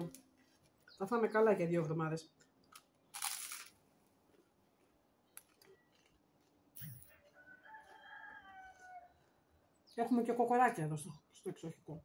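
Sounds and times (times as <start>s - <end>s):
rooster crowing: 7.2s - 9.3s.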